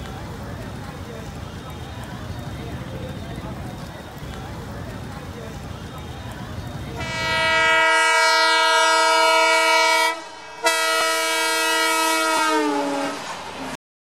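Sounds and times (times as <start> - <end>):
locomotive air horn blasts: 7.0 - 13.3.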